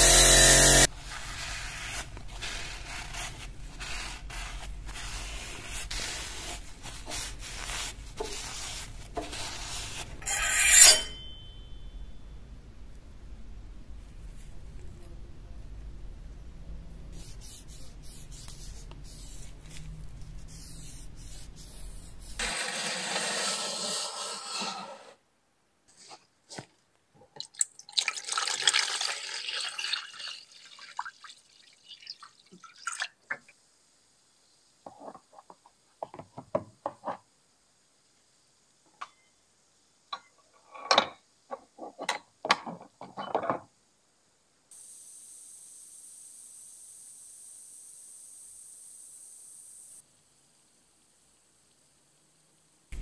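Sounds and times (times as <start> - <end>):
low steady hum: 10.1 - 22.4.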